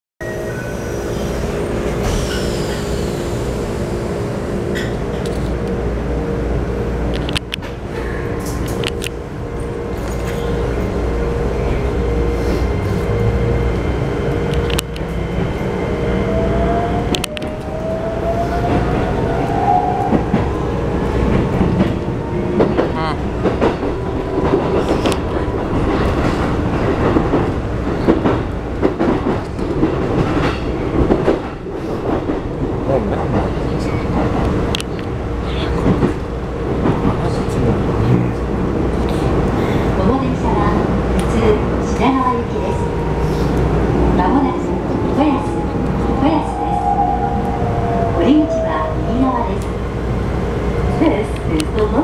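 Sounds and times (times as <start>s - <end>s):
clickety-clack of rail joints: 4.7s - 5.8s, 7.1s - 11.0s, 14.3s - 15.6s, 18.6s - 42.4s.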